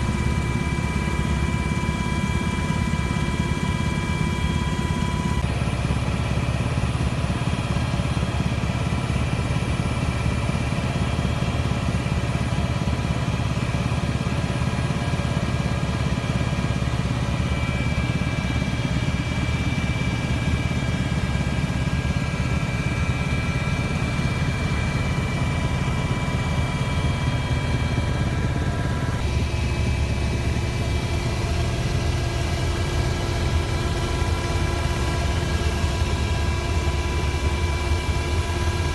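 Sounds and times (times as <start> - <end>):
aircraft engine drone in cabin: 0.0 - 38.9.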